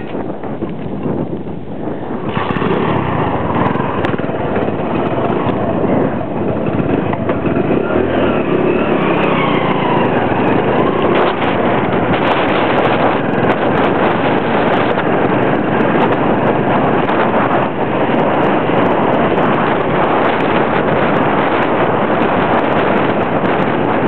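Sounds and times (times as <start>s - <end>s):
wind on microphone: 0.0s - 24.0s
small motorcycle engine running: 2.0s - 24.0s.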